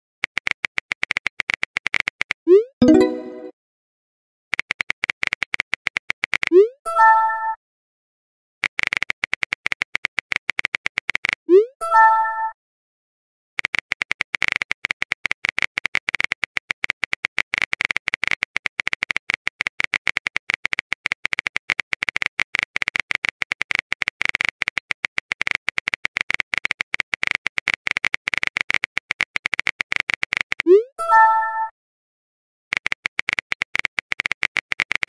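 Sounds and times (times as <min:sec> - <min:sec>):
rapid keyboard clicks: 0:00.2 - 0:02.4, 0:04.5 - 0:06.5, 0:08.6 - 0:11.4, 0:13.6 - 0:30.7, 0:32.7 - 0:35.0.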